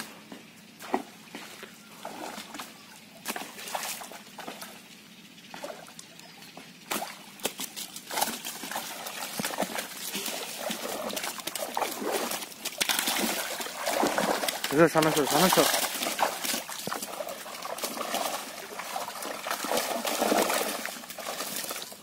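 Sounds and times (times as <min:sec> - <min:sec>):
fish thrashing in water: 0:06.9 - 0:22.0.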